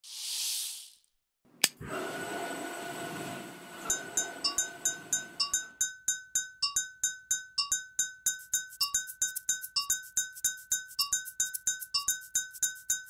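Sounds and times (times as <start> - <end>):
spoon tapping glass tumbler: 3.8 - 13.0.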